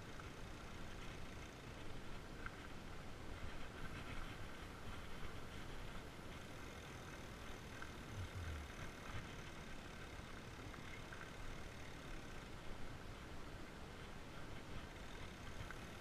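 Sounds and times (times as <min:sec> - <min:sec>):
bike tyres rolling on dirt: 0:00.0 - 0:16.0
wind on microphone: 0:08.1 - 0:08.9.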